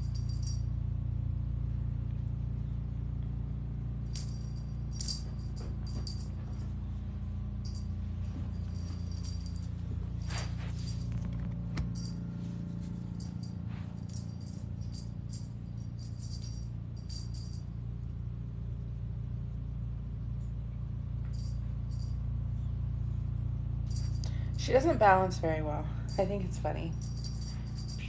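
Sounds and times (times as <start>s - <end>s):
light metallic jingling: 0.0s - 0.8s, 4.0s - 18.2s, 21.2s - 28.0s.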